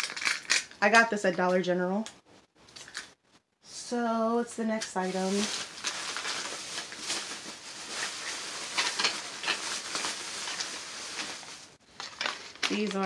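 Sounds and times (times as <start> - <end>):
plastic bags rustling: 4.8 - 13.0.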